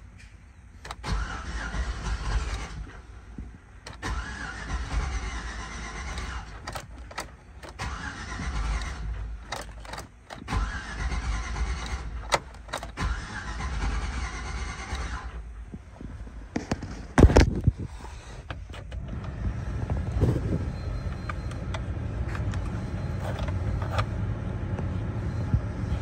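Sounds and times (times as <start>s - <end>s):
engine cranking by starter: 0.8s - 24.2s
sharp clicks: 5.0s - 13.5s.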